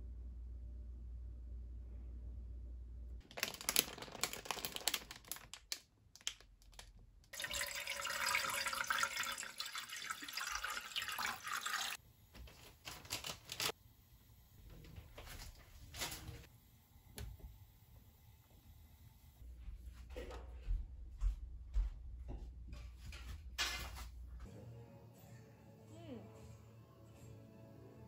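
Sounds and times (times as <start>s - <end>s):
water running from tap: 7.3s - 12.0s.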